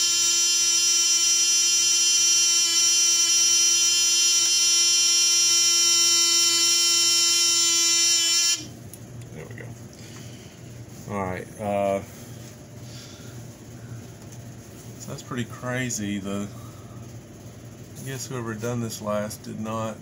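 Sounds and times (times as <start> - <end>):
fire alarm horns buzzing: 0.0 - 8.8.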